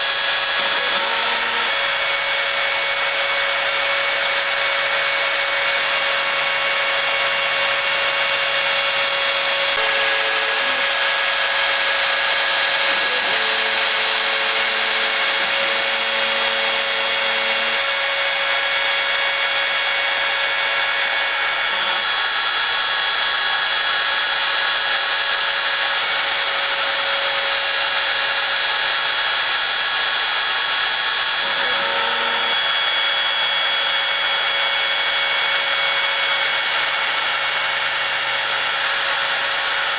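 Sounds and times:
spindle motor whining: 0.0s - 39.9s
stepper motors humming: 9.3s - 17.9s, 31.4s - 33.0s.

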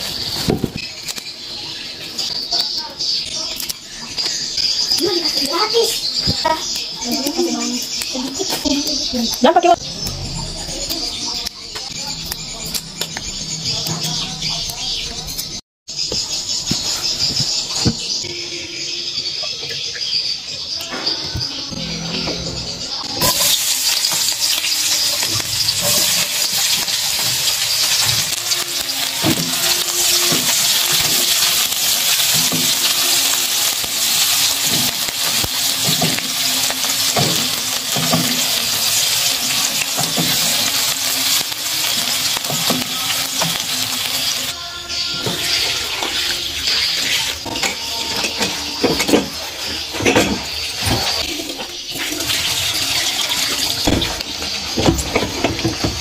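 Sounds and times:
food sizzling in hot oil: 0.0s - 14.2s, 23.0s - 56.0s
water running and splashing: 23.2s - 44.6s, 48.4s - 56.0s.

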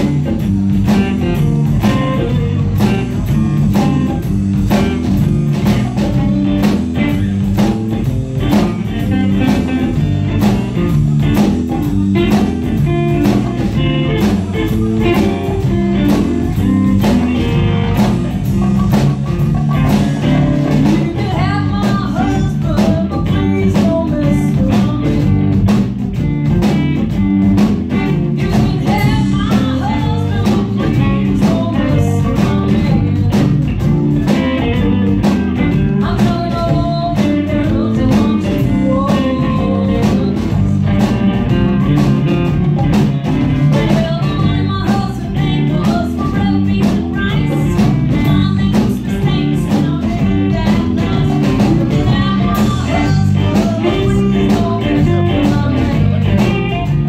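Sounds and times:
live blues band playing: 0.0s - 57.0s.

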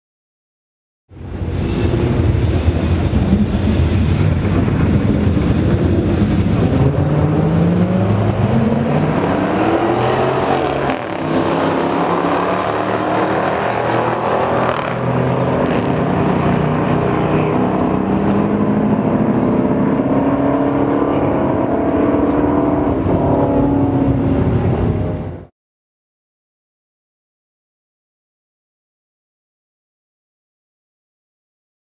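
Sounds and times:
car engines accelerating hard: 1.2s - 25.5s.

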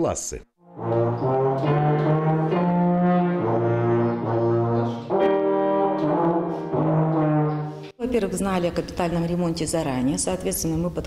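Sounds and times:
tuba held notes: 0.6s - 8.0s.

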